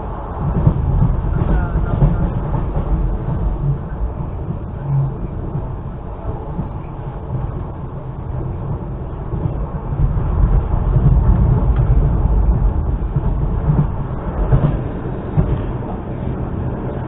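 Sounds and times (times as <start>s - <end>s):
train wheels rumbling on track: 0.0s - 17.0s.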